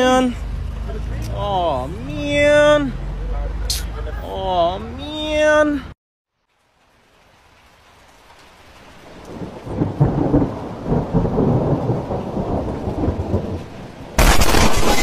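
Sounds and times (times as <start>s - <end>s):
rain: 0.0s - 15.0s
rolling thunder: 9.1s - 15.0s
loud thunder clap: 9.2s - 13.6s.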